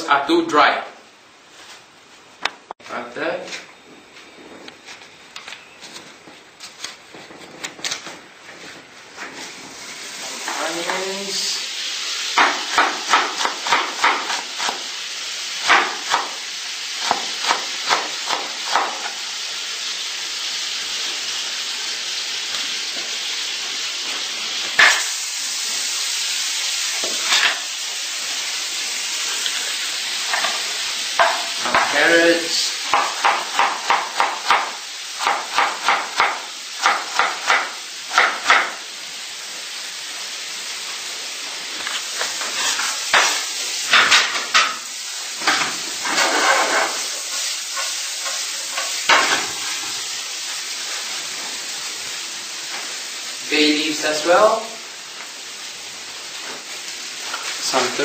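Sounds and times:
butter sizzling in frying pan: 9.1 - 58.0
knife chopping on wooden board: 32.9 - 38.7.

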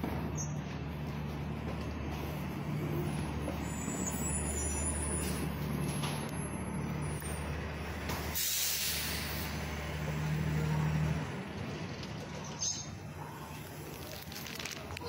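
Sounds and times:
bus engine idling: 0.0 - 15.0
air brakes hissing: 8.1 - 9.6.

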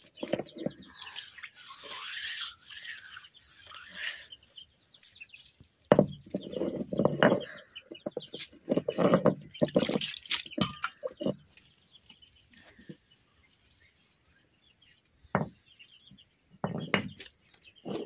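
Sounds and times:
grinding stone scraping wet slab: 0.0 - 4.3, 6.3 - 11.6.

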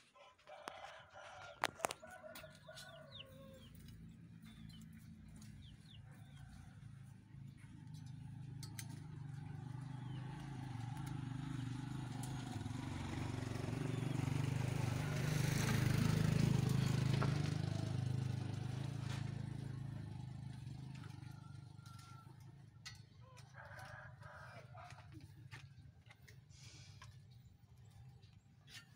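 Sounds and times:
vehicle passing by: 1.6 - 22.3.

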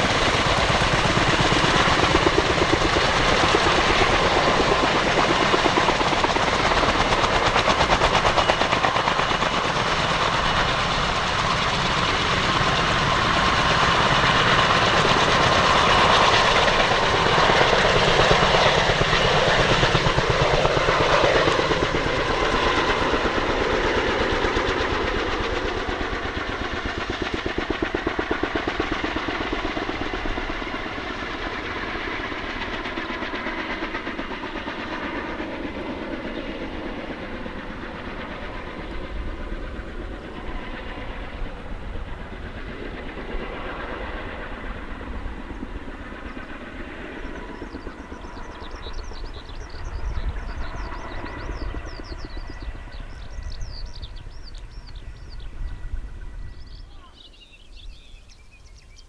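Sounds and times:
helicopter rotor beat: 0.0 - 59.0
turbine whine: 44.6 - 57.0.

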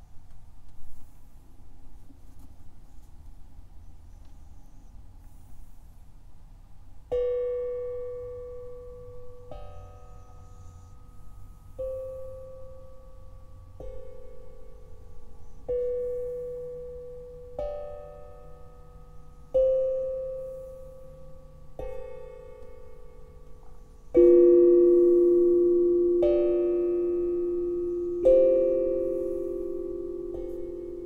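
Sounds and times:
tongue drum struck with mallet: 21.4 - 31.0.

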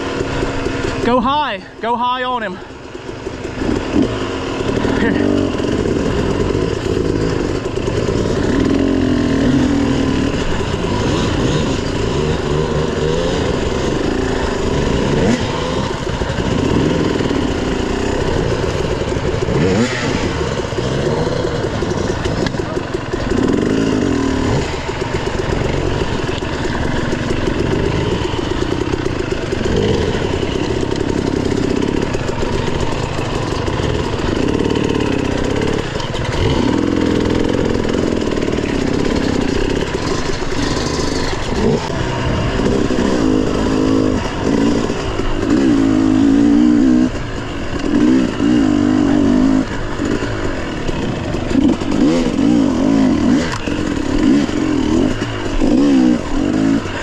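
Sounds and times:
dirt bike engines revving: 0.0 - 57.0.

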